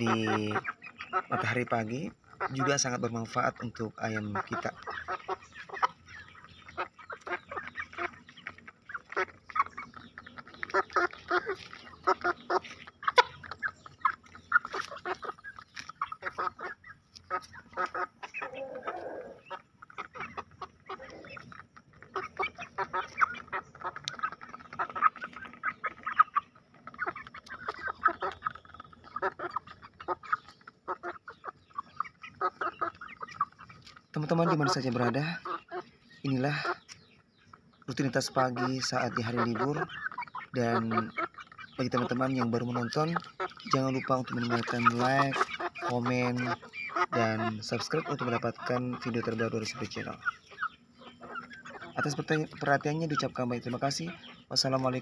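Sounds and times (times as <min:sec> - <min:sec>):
beaks pecking on paving stones: 0:00.0 - 0:55.0
chicks peeping and clucking: 0:00.0 - 0:55.0.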